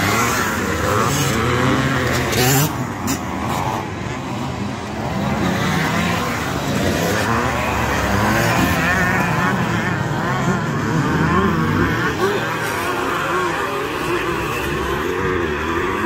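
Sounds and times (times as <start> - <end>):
motocross bike engines revving: 0.0 - 16.0
motorbike passing close: 0.0 - 16.0.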